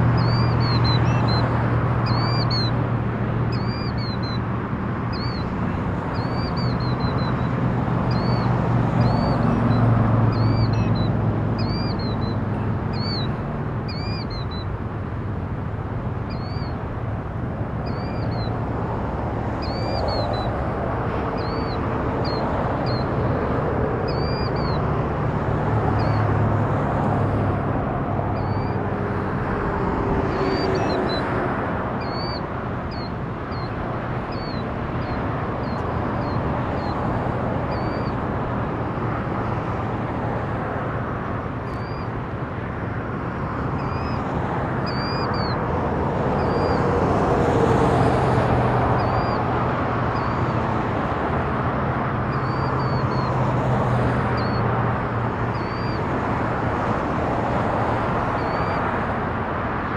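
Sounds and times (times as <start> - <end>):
killdeer calling: 0.0 - 2.9, 3.5 - 14.9, 16.1 - 26.4, 27.0 - 39.6, 40.4 - 42.2, 43.4 - 47.1, 47.8 - 50.7, 52.0 - 56.6, 57.6 - 59.0
road traffic rumble: 0.0 - 59.9
vehicle passing: 0.0 - 59.9.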